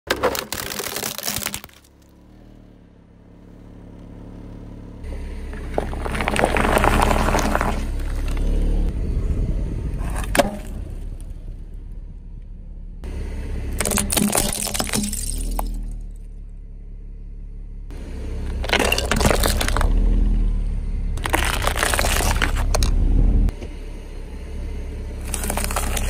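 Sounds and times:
paper cups crumpling: 0.1 - 1.9, 5.6 - 8.4, 18.6 - 19.9, 21.2 - 22.9, 25.2 - 26.0
plastic cracking: 0.1 - 2.0, 21.2 - 22.9, 25.2 - 26.0
tyre rolling rumble: 5.1 - 8.9.

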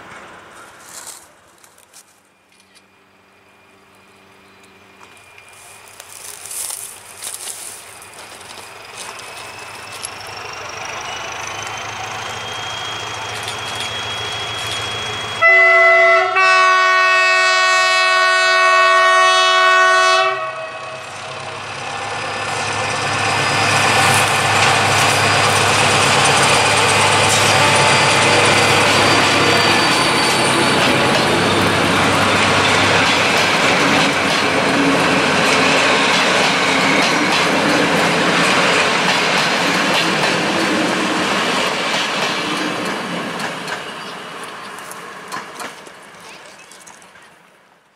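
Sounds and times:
diesel locomotive engine: 0.0 - 47.9
train wheels clicking over rails: 4.6 - 15.4, 21.1 - 47.3
train horn blasts: 13.8 - 21.3, 27.2 - 32.2.

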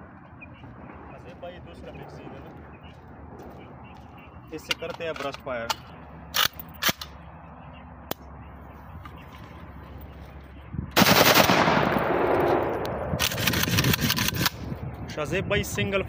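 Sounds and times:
sharp clicks: 4.6 - 7.2, 12.4 - 14.7.

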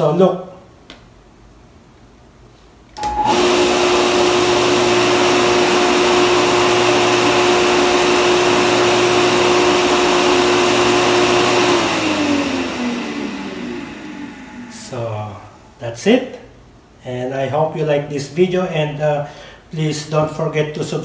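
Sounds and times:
water pump motor whining: 3.0 - 15.6.

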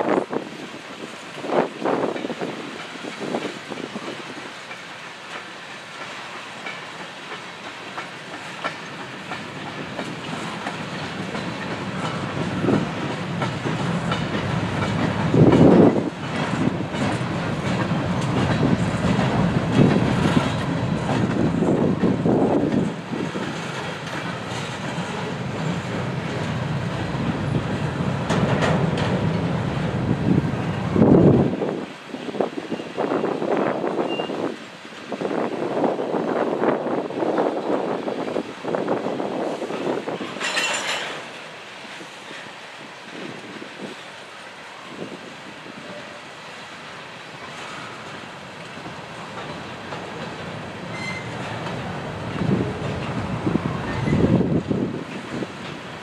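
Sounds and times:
train wheels clattering on track: 0.0 - 56.0.

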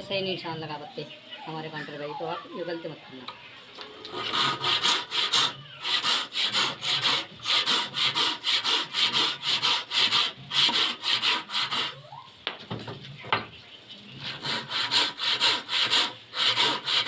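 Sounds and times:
hand saw cutting wood: 4.0 - 12.0, 14.2 - 17.0.

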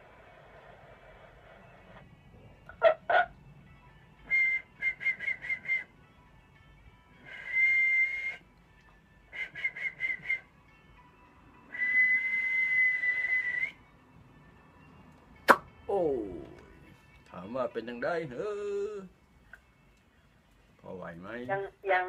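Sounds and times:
man whistling: 4.2 - 6.0, 7.2 - 8.5, 9.3 - 10.6, 11.7 - 13.9.

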